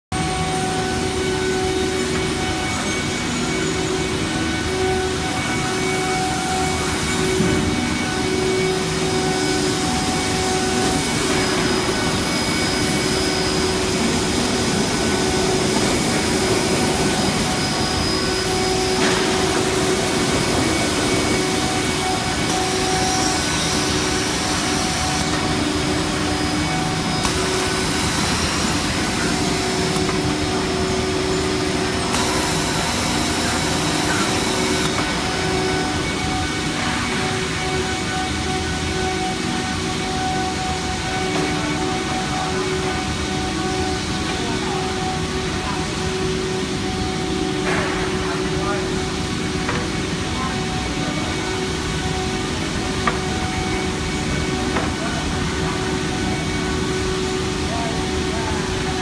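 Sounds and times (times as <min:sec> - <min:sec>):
sanding machine drone: 0:00.1 - 0:59.0
dust extraction rushing: 0:07.7 - 0:38.7.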